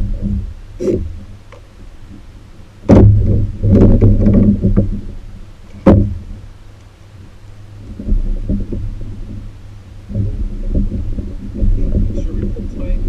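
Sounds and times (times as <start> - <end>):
handling thumps on kayak: 2.8 - 6.4, 10.1 - 13.0.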